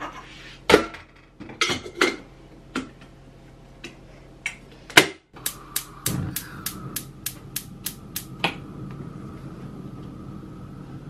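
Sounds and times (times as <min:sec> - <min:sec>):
gas hob igniter clicking: 0:05.4 - 0:08.6.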